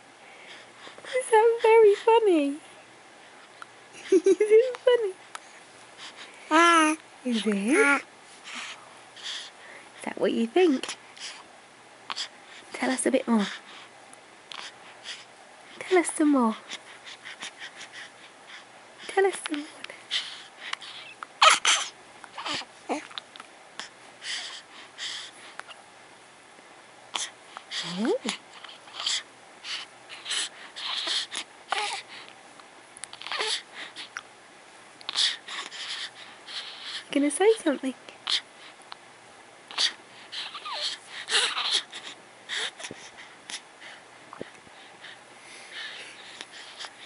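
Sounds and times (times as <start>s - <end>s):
baby cooing: 6.5s - 8.0s, 21.0s - 23.2s, 33.1s - 33.6s, 39.7s - 41.9s
baby breathing noisily: 14.5s - 23.2s, 23.8s - 25.8s, 27.1s - 32.4s, 33.1s - 34.2s, 35.1s - 37.1s, 39.7s - 47.0s
baby soft breaths: 23.8s - 25.8s, 35.1s - 37.2s, 39.7s - 47.0s.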